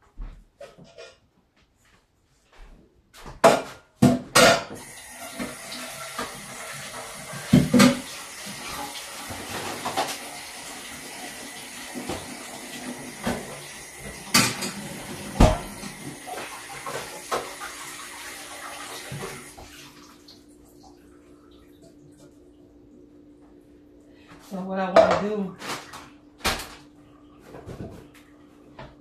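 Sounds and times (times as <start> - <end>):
tap running into sink: 4.7 - 19.9
pots and dishes clanking: 14.1 - 17.5.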